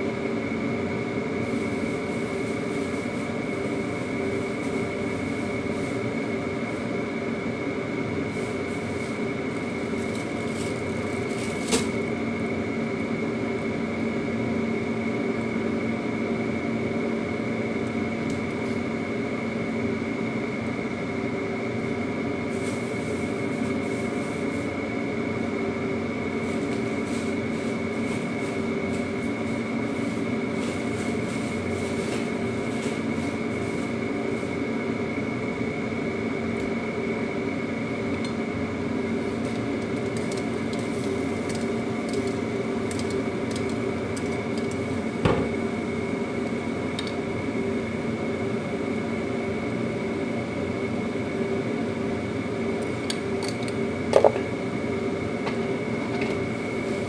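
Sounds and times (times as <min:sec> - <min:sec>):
kitchen fan motor humming: 0:00.0 - 0:57.0
food crackling in a wok: 0:39.3 - 0:45.0.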